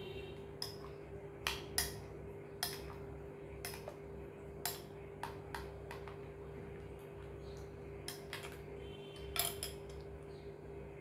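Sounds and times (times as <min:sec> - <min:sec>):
faint steady hum: 0:00.0 - 0:11.0
metal spoon clinking glass bowl: 0:09.2 - 0:10.1.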